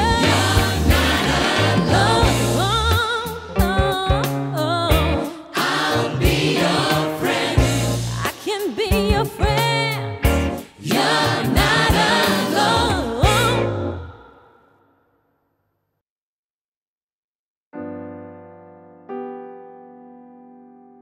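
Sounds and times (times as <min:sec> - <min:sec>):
gospel choir singing: 0:00.0 - 0:03.0, 0:05.2 - 0:08.5, 0:10.6 - 0:14.4
bass and drums band: 0:00.0 - 0:13.9.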